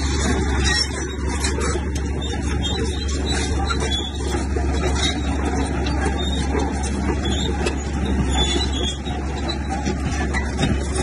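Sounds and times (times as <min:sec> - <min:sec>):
bulldozer diesel engine running: 0:00.0 - 0:11.0.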